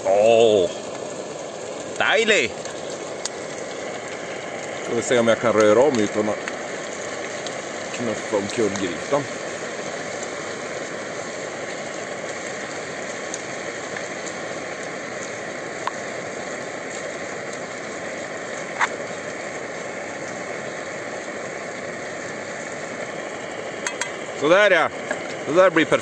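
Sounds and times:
camping stove burner hissing: 0.0s - 26.0s
food frying in a pot: 0.0s - 26.0s
spoon clicking against pot: 23.8s - 24.2s.

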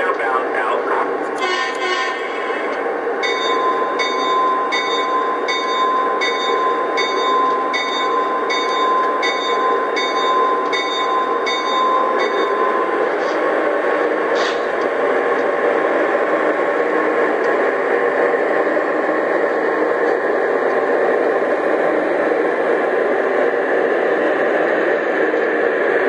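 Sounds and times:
diesel locomotive engine running: 0.0s - 26.0s
locomotive bell ringing: 3.2s - 12.9s.

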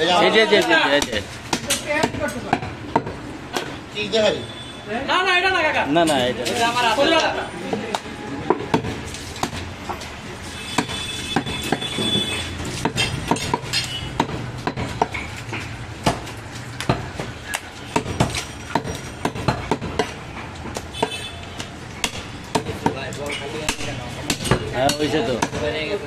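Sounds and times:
market noise: 0.0s - 26.0s
cleaver chopping on wood: 0.6s - 3.7s, 7.9s - 9.7s, 10.8s - 25.7s.

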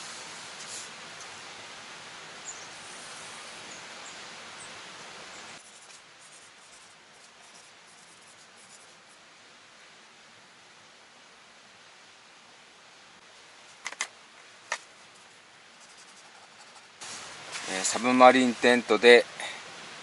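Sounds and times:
background hiss: 0.0s - 20.0s
pen scratching on paper: 5.6s - 9.0s, 15.8s - 16.9s.

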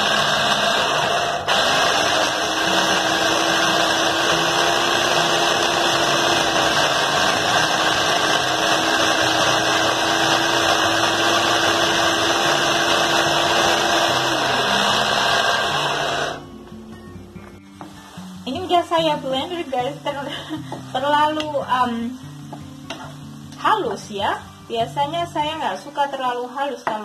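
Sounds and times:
small electric blender running: 0.0s - 16.4s.

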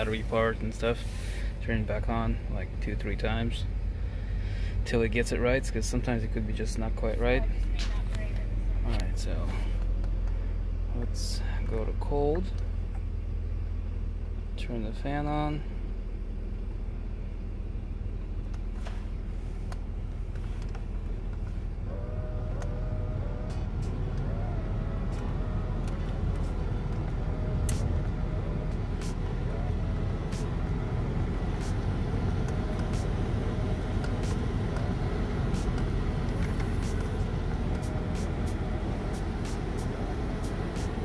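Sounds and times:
car blower fan blowing air: 0.0s - 41.0s
car engine running: 0.0s - 41.0s
faint wavering whine: 21.1s - 41.0s
dash control clicks: 23.4s - 41.0s.

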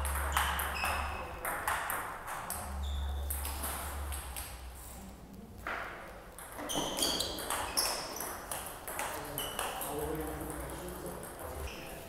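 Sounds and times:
table tennis ball clicking: 0.0s - 2.6s, 6.1s - 11.4s.

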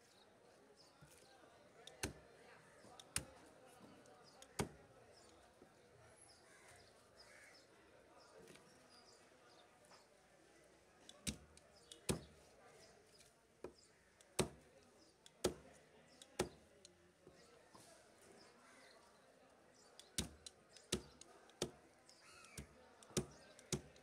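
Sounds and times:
knife chopping fish on wood: 4.5s - 4.8s, 11.2s - 11.4s, 12.0s - 12.4s, 14.4s - 14.6s, 15.3s - 15.7s, 16.3s - 16.6s, 20.0s - 21.8s, 22.4s - 24.0s.

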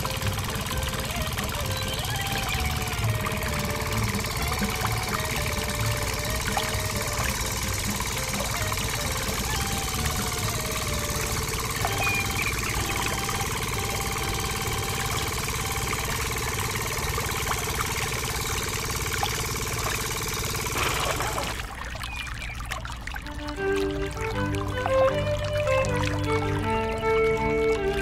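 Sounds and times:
small motor buzzing: 0.0s - 21.7s
water pouring into pond: 0.0s - 28.0s.

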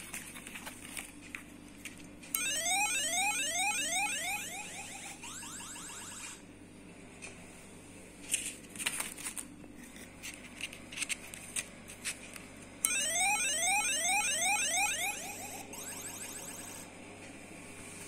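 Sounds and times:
electronic alarm whooping: 2.4s - 6.4s, 12.8s - 16.9s.

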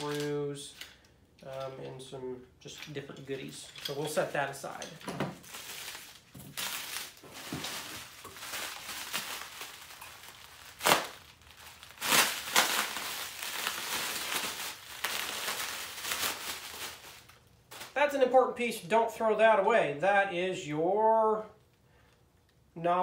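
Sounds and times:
bubble wrap crinkling: 5.4s - 18.0s
bubble wrap sharp crack: 5.4s - 18.0s.

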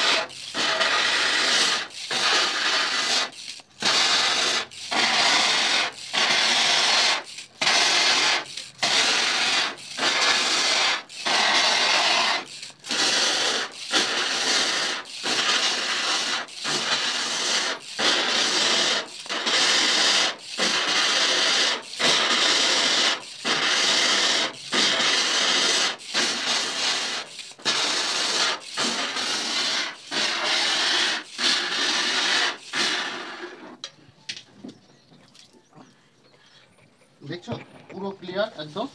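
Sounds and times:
hand-pump sprayer hissing: 0.0s - 33.9s.

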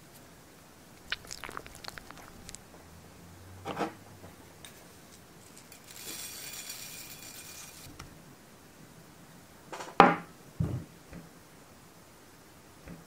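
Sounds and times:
seeds falling hiss: 1.0s - 2.6s.

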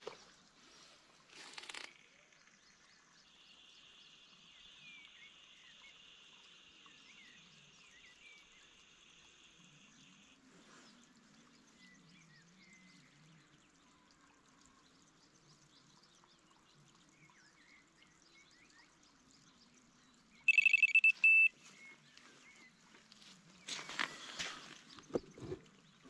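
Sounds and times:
faint bird chirps: 20.4s - 22.7s
electronic bite alarm beeps: 20.5s - 21.5s.

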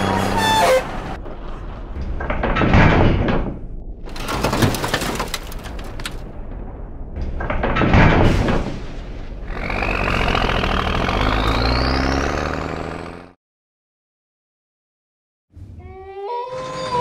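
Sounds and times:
truck engine whining: 0.0s - 1.6s, 9.4s - 13.4s
bones clattering: 4.0s - 6.3s.

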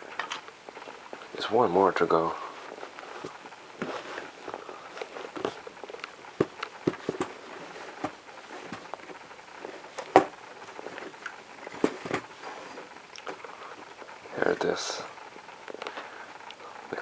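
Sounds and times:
fabric rustling: 2.3s - 13.9s.

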